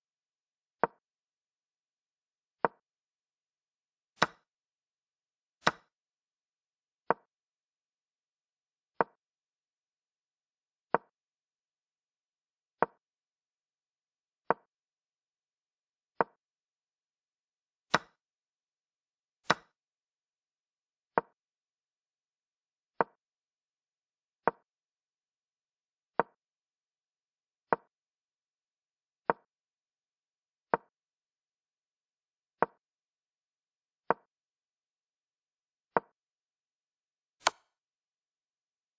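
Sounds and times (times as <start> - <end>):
chess piece wooden clicks: 17.9 - 18.2, 37.4 - 37.7.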